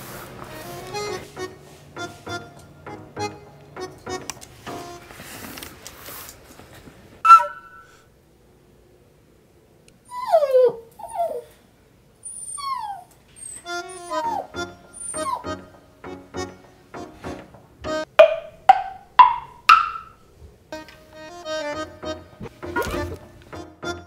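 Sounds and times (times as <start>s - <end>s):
background music: 0.5s - 5.2s, 13.7s - 20.0s, 20.7s - 24.0s
dog whimpering: 10.1s - 11.6s, 12.2s - 15.6s.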